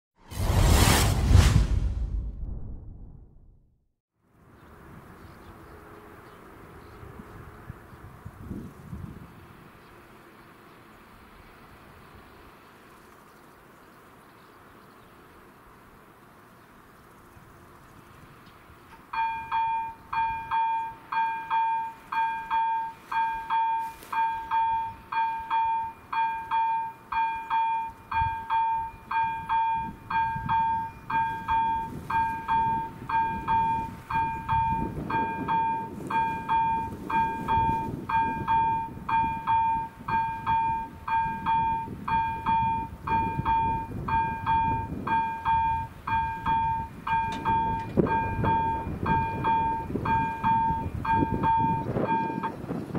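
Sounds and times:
low rumble: 0:00.2 - 0:03.8
electronic warning bell ringing: 0:19.2 - 0:52.6.

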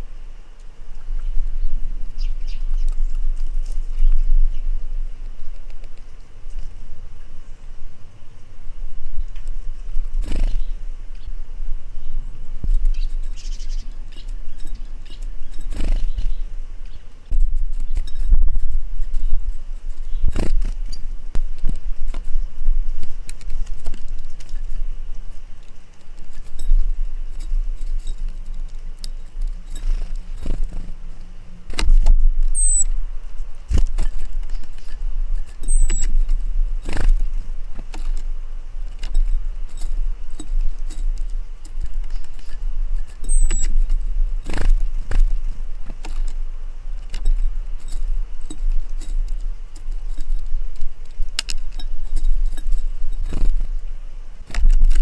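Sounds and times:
deep rumble: 0:00.0 - 0:55.0
small bird high thin calls: 0:32.5 - 0:33.0, 0:35.6 - 0:36.2, 0:43.2 - 0:43.8.

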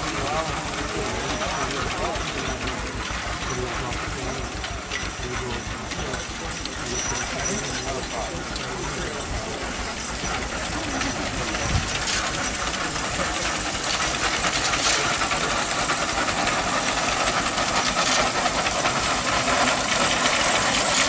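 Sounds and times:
grain binder mechanism clattering: 0:04.7 - 0:21.0.

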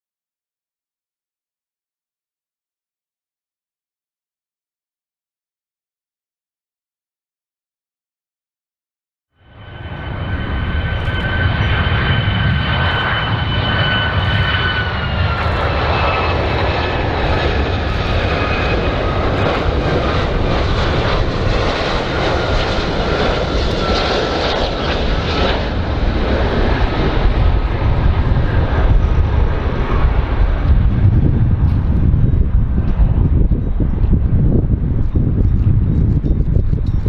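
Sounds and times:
jet engine whine: 0:09.4 - 0:37.0
deep engine rumble: 0:09.5 - 0:37.0.

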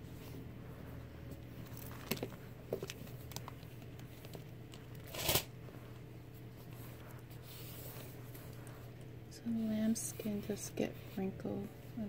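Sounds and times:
bag rustling: 0:01.3 - 0:05.4.

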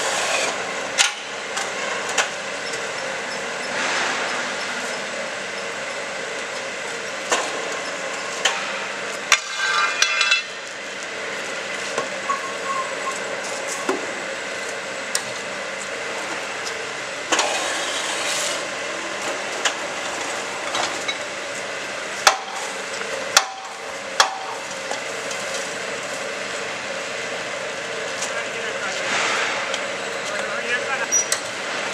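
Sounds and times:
machine mechanical drone: 0:00.0 - 0:31.9
metal clanks and knocks: 0:09.3 - 0:10.6.

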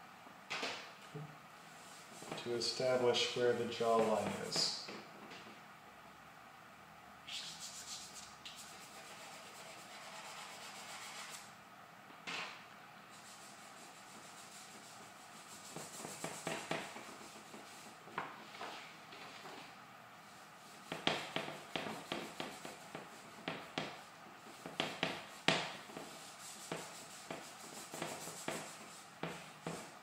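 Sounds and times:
charcoal scratching on paper: 0:07.3 - 0:11.5, 0:13.2 - 0:18.0, 0:20.6 - 0:30.0.

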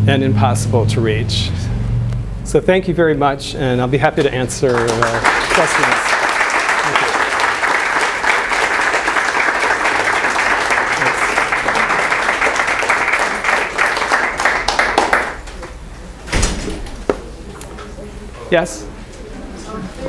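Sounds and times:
audience applauding: 0:04.6 - 0:15.7.

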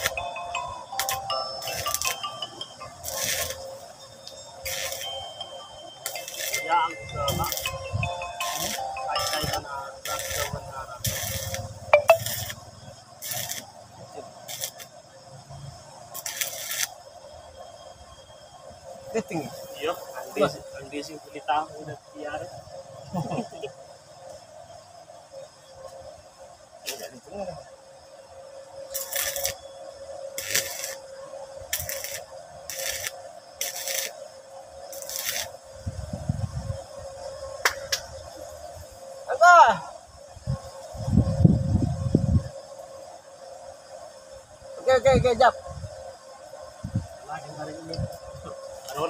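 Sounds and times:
welding arc crackling hiss: 0:00.0 - 0:17.1, 0:26.8 - 0:27.5, 0:28.9 - 0:29.7, 0:30.3 - 0:36.4, 0:37.6 - 0:39.8, 0:47.3 - 0:49.0.

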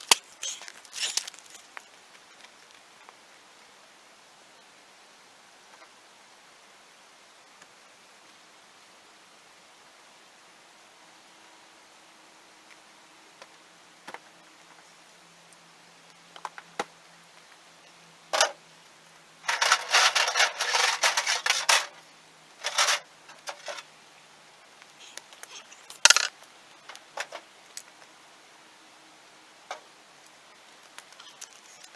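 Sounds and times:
metal rebar clinking and scraping: 0:19.4 - 0:22.0, 0:22.6 - 0:23.9.

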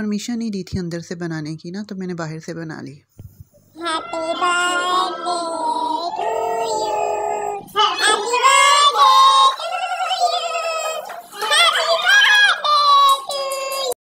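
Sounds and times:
women and children singing: 0:03.8 - 0:14.0.

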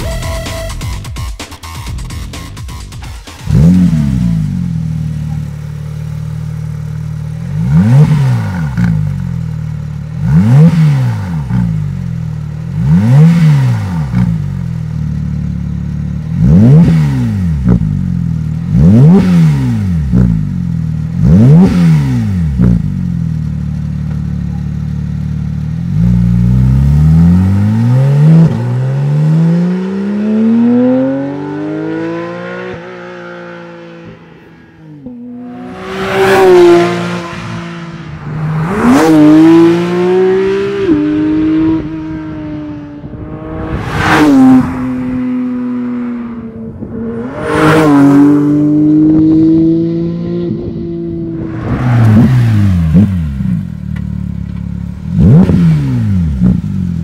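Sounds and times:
sports car engine revving: 0:03.3 - 0:57.0
car accelerating through gears: 0:25.9 - 0:53.7, 0:55.1 - 0:56.6.

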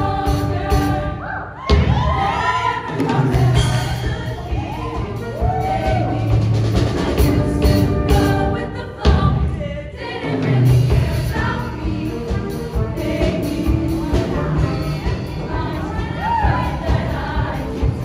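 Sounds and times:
choir singing pop song: 0:00.0 - 0:18.0
live band with drum kit: 0:00.0 - 0:18.0.

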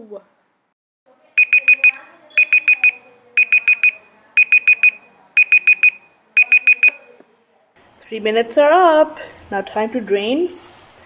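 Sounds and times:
timer alarm beeping: 0:01.4 - 0:07.0.

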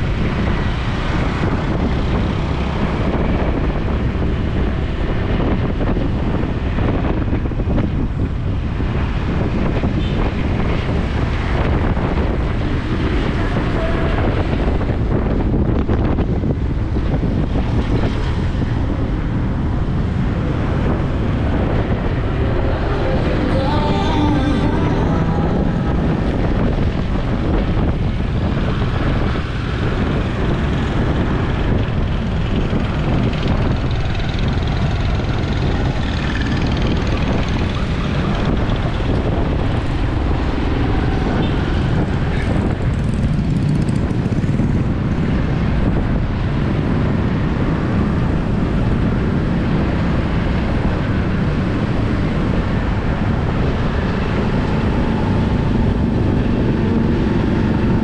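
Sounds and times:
vehicle road rumble: 0:00.0 - 0:58.0.

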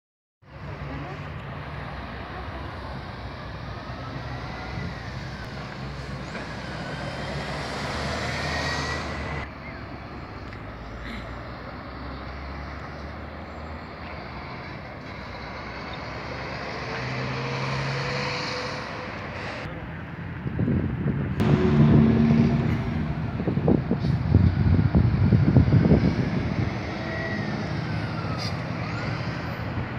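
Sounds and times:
tyre and traffic noise: 0:00.4 - 0:29.9
coach engine drone: 0:21.4 - 0:29.9.

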